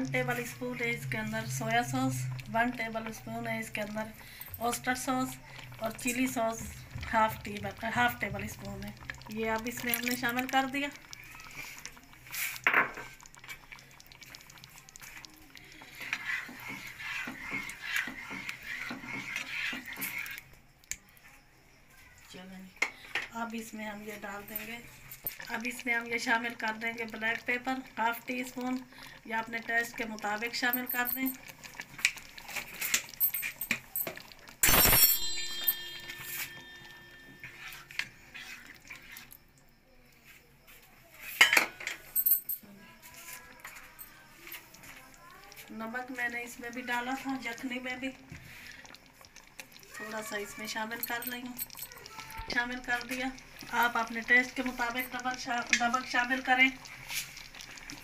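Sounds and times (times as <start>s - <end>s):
soup sloshing in metal pan: 0.3s - 20.5s, 27.3s - 34.6s, 35.2s - 39.4s
spoon tapping pan: 32.8s - 38.2s.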